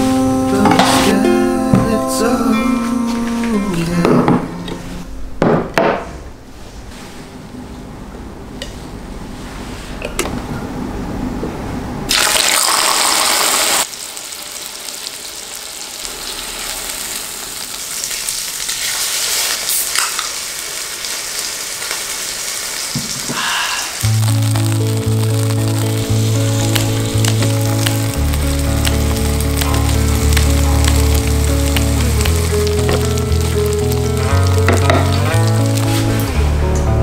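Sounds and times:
steak sizzling in oil: 0:12.1 - 0:23.2, 0:24.0 - 0:36.2.

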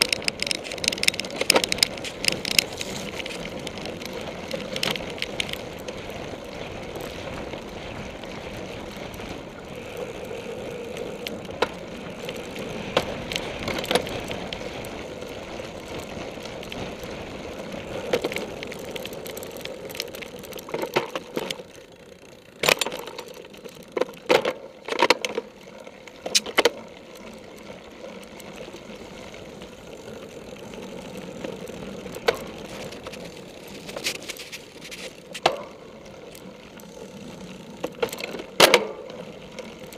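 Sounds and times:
bike knocks and clatters on rough ground: 0:00.0 - 0:09.6, 0:11.2 - 0:21.7, 0:22.5 - 0:25.5, 0:31.1 - 0:36.9, 0:37.8 - 0:39.2
bike rolling and rattling over grass: 0:00.0 - 0:39.9.

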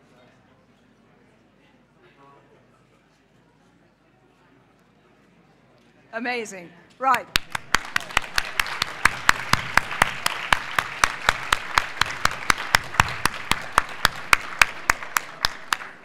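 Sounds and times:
close loud hand clapping: 0:07.1 - 0:16.0
audience applauding: 0:07.2 - 0:16.0.

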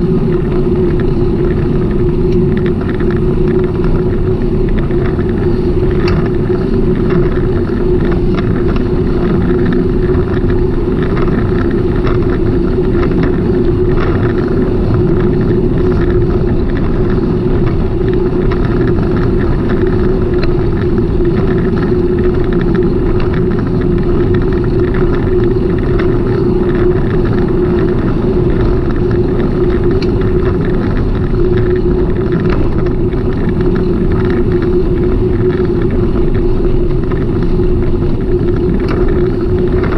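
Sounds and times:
bicycle ride rumble: 0:00.0 - 0:39.9
constant hum: 0:00.0 - 0:39.9.

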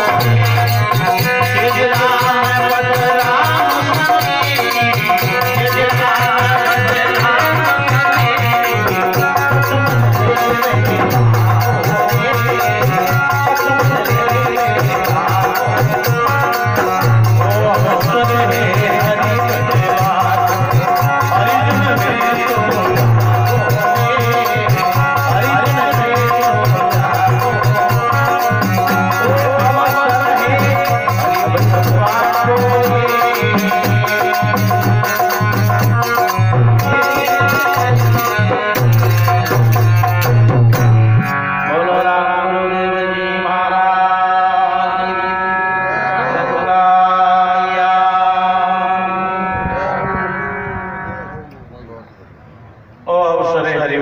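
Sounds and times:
hand drum rhythm: 0:00.0 - 0:41.4
harmonium melody: 0:00.0 - 0:53.0
man singing a held note: 0:41.6 - 0:53.6.

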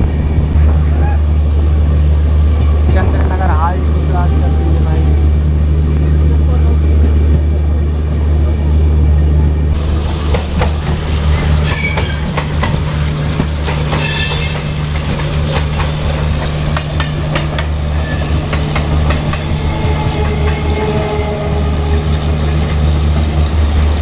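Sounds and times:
train coach rumbling: 0:00.0 - 0:24.0
high wheel squeal: 0:11.6 - 0:12.3, 0:14.0 - 0:14.8, 0:17.9 - 0:18.5.

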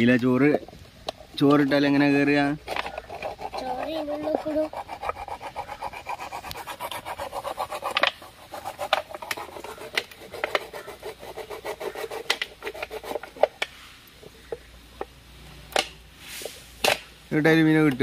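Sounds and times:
knife sawing through plastic bottle: 0:02.6 - 0:13.6.

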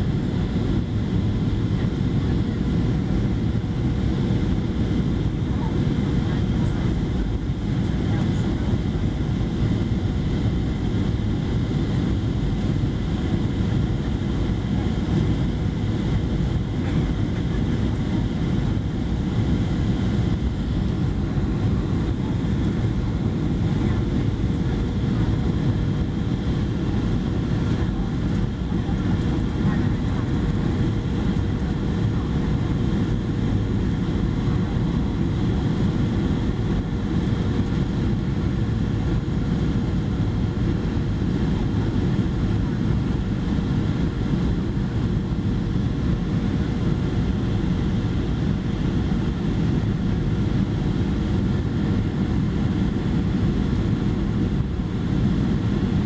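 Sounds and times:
airplane cabin engine rush: 0:00.0 - 0:56.0.

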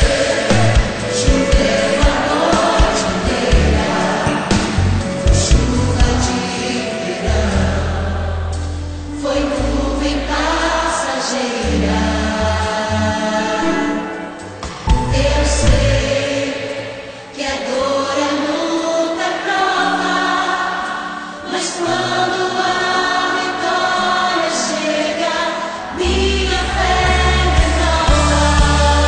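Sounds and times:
heavy bass and beat: 0:00.0 - 0:01.8
gospel choir singing a hymn: 0:00.0 - 0:29.0
instrumental accompaniment: 0:11.8 - 0:17.3.

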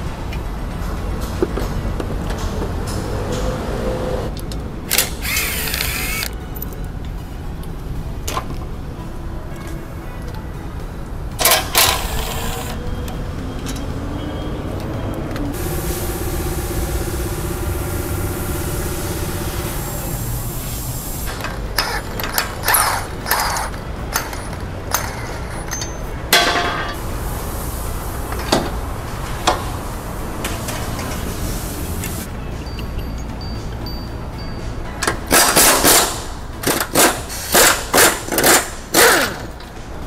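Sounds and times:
motor whirring: 0:05.2 - 0:06.3.

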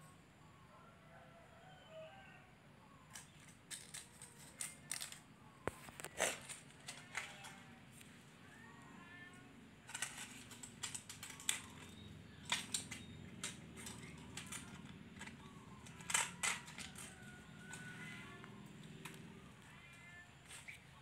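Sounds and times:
sharp clicks and scrapes: 0:03.1 - 0:08.1, 0:09.8 - 0:19.2.

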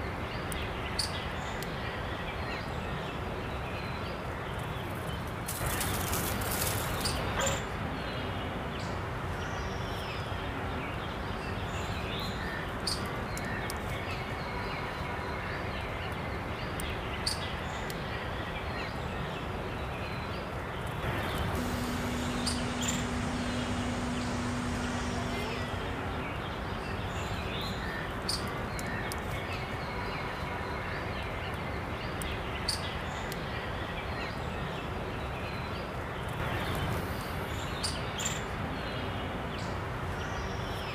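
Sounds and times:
steady outdoor hiss: 0:00.0 - 0:40.9
steady low hum: 0:20.8 - 0:28.3
noisy burst: 0:21.0 - 0:28.0
bird chirps: 0:21.0 - 0:28.9.

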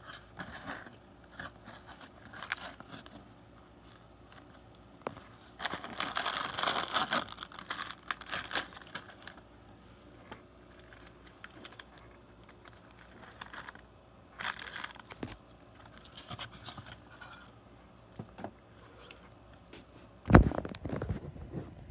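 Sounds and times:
plastic bags crinkling: 0:05.1 - 0:09.5, 0:10.6 - 0:17.1.

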